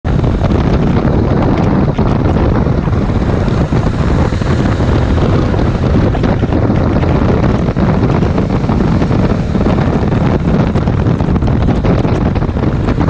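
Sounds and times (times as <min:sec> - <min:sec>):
motorcycle engine running: 0:00.0 - 0:13.0
wind buffeting on microphone: 0:00.0 - 0:13.0.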